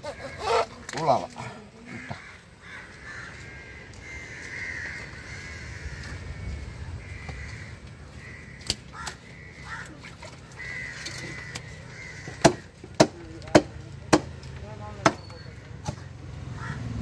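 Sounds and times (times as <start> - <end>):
crows cawing: 0.0 - 13.2, 15.3 - 16.9
cleaver chopping on wooden block: 12.4 - 14.4.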